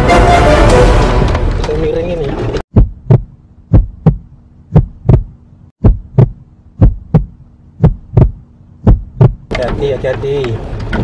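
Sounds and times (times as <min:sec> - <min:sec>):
heartbeat thumps: 0:02.7 - 0:09.5
faint steady hum: 0:02.8 - 0:09.5.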